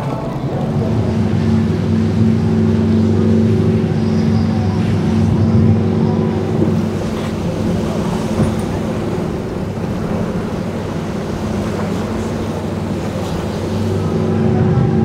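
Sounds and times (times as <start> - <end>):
motorboat engines humming: 0.0 - 15.0
wash of noise: 0.0 - 15.0.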